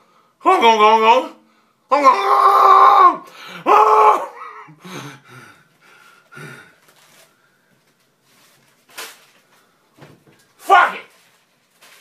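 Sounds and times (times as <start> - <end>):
man wailing: 1.9 - 4.8
gasping breaths: 4.4 - 7.0.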